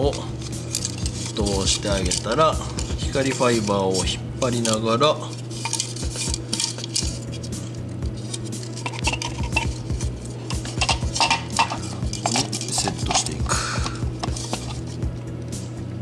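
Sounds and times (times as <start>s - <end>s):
plastic part handling clicks: 10.5s - 15.0s.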